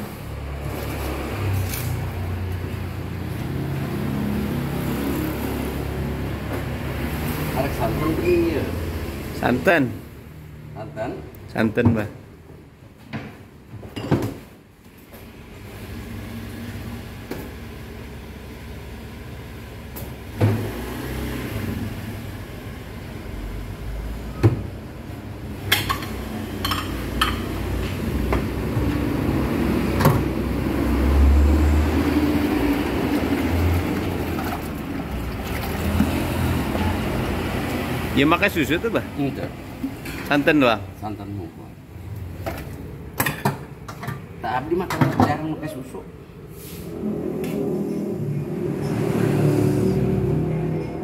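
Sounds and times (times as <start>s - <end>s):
spoons clinking on ceramic bowls: 25.8s - 27.5s.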